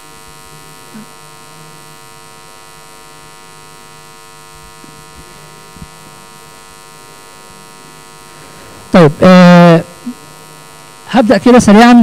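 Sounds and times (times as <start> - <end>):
electrical buzz: 0.0 - 12.0.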